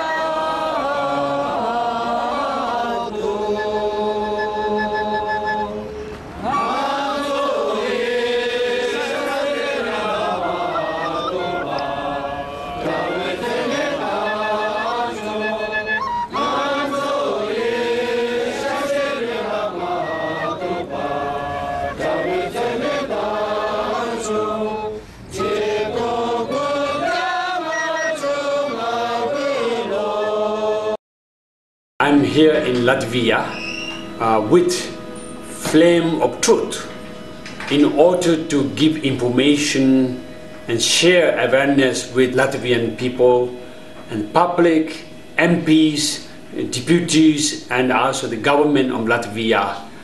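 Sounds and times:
voices chanting: 0.0 - 31.0.

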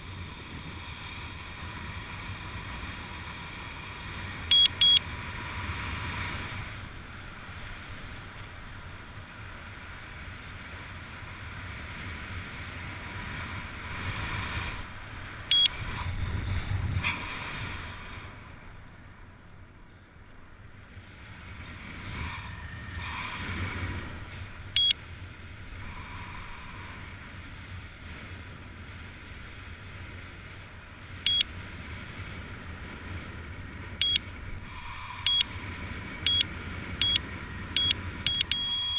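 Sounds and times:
short high electronic beeps: 4.5 - 5.0, 15.5 - 15.8, 24.8 - 25.0, 31.3 - 31.5, 35.3 - 35.5, 37.8 - 38.9
wind rushing over microphone: 12.7 - 18.8.

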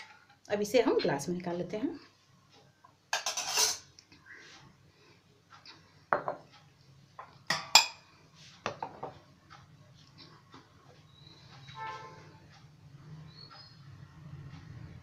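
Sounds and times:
glassware clinking on wood: 3.2 - 3.8, 6.2 - 6.4, 7.2 - 8.0.

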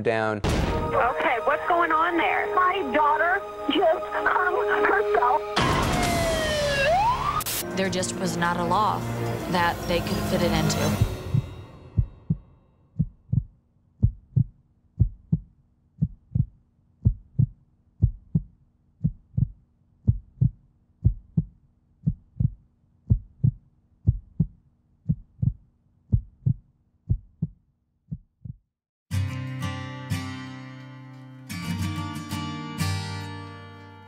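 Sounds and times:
heartbeat double thump: 11.0 - 28.7.

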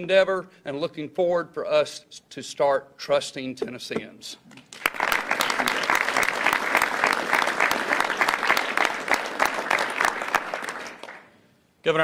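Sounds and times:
people clapping: 4.6 - 11.4.

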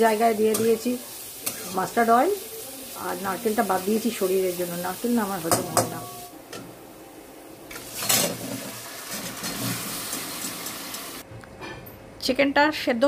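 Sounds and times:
steady hiss of frying: 0.0 - 11.3
food and liquid hitting a wok: 5.3 - 6.8, 7.7 - 11.2.

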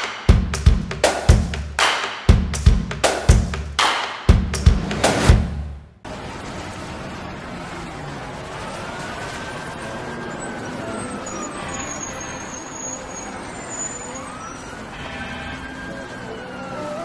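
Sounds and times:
city traffic noise: 4.4 - 17.0
distant siren wailing: 6.2 - 17.0.

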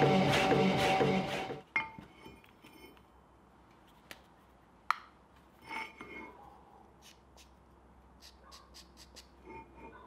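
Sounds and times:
marker scratching on steel: 7.0 - 10.0.

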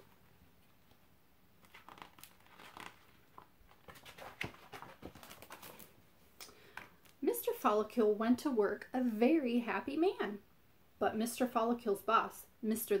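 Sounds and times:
book pages turning: 1.6 - 6.1.

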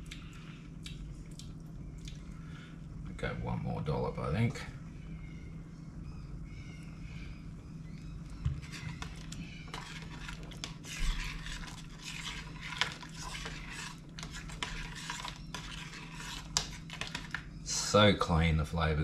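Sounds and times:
low steady hum: 0.0 - 19.0
spoon stirring in a pot: 8.4 - 17.6.

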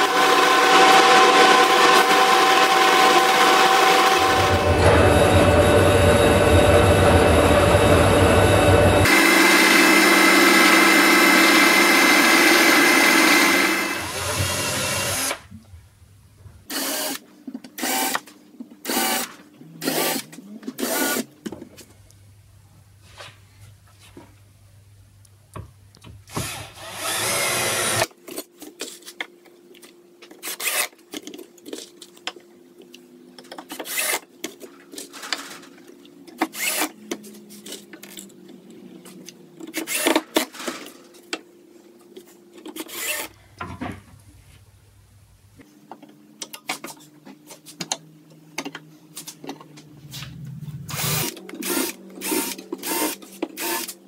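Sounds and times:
cordless drill driving screws: 18.9 - 20.2, 26.3 - 28.1, 36.5 - 36.9, 39.8 - 40.2, 50.9 - 54.0.

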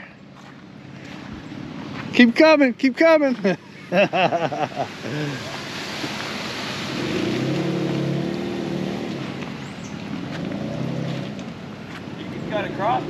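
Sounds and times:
vehicle engine running low revs: 6.7 - 13.0.

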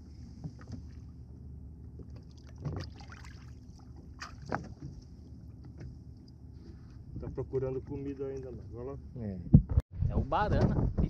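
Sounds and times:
water splashing against boat: 0.0 - 8.8.

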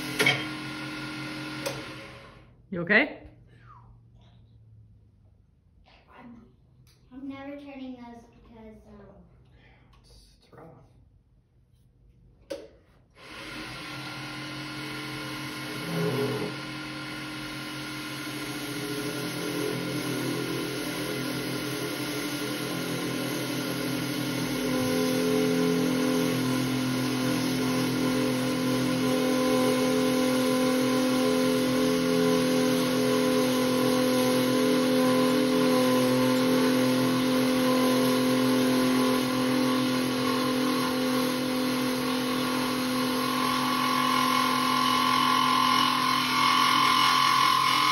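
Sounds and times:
lathe hum and whir: 0.0 - 2.4, 13.2 - 47.9.

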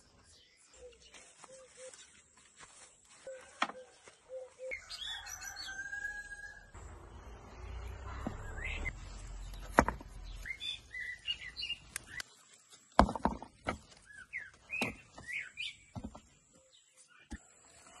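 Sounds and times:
small birds chirping: 0.0 - 13.0, 13.7 - 18.0.

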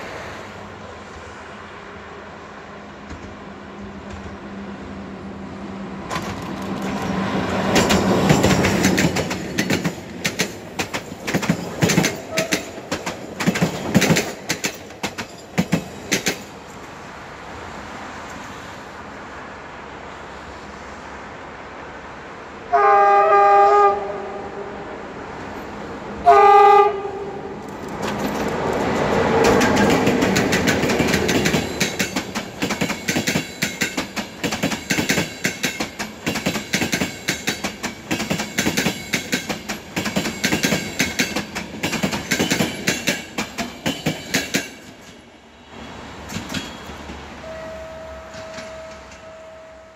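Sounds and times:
locomotive rushing past: 0.0 - 49.9
train wheels clickety-clack: 3.0 - 4.5, 6.0 - 17.0, 27.6 - 45.3, 46.2 - 47.3, 48.2 - 49.3
locomotive horn blasts: 22.7 - 24.8, 26.2 - 27.5, 47.4 - 49.9.

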